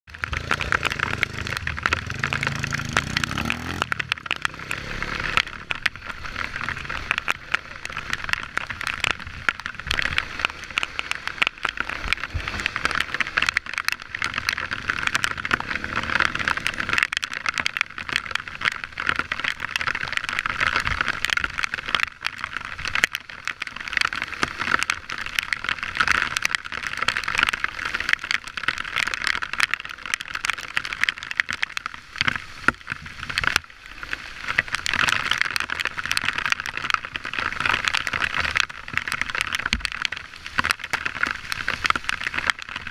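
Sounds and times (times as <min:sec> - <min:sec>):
dirt bike engine running: 0:00.1 - 0:05.6
small clicks and rattles: 0:00.1 - 0:42.9.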